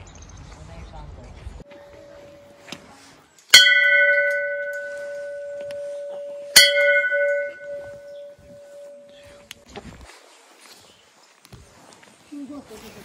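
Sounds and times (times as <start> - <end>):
temple bell ringing: 1.7 - 2.8, 3.5 - 9.5.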